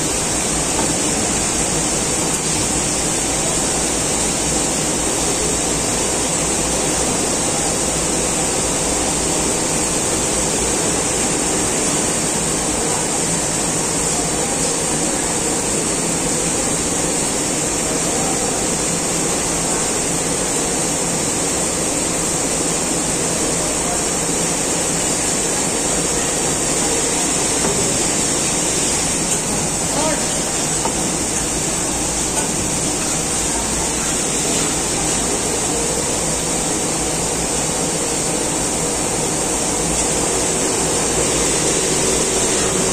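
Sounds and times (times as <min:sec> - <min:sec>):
yarn warping machine rushing: 0:24.0 - 0:42.9.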